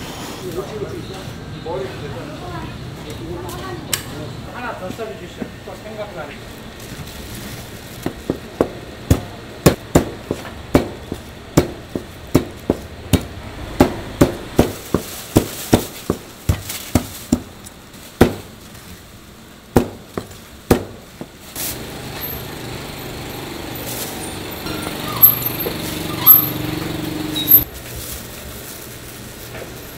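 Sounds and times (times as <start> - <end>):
plastic bag rustling: 6.2 - 8.5, 14.4 - 19.3, 27.6 - 29.9
cleaver chopping on cutting board: 8.0 - 17.5.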